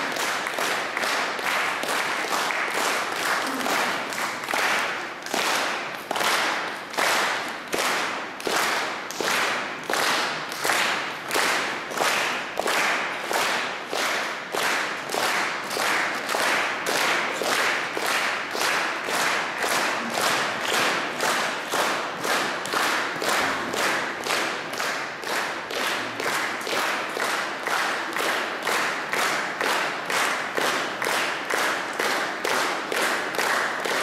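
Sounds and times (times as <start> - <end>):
audience clapping in unison: 0.0 - 34.0.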